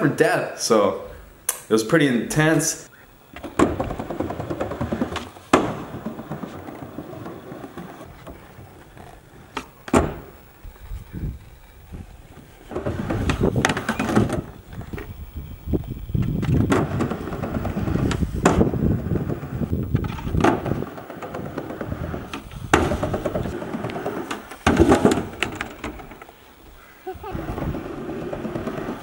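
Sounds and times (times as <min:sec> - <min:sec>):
skateboard wheels rolling on metal: 0:03.1 - 0:29.0
skateboard knocks and clacks: 0:03.3 - 0:10.4, 0:12.7 - 0:15.2, 0:16.1 - 0:26.3, 0:27.4 - 0:29.0.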